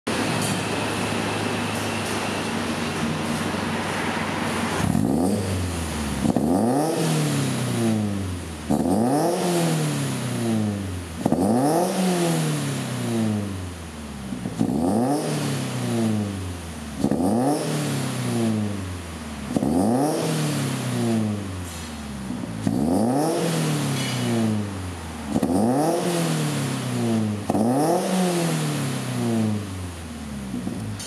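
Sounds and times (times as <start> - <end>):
car engine revving: 2.4 - 31.0.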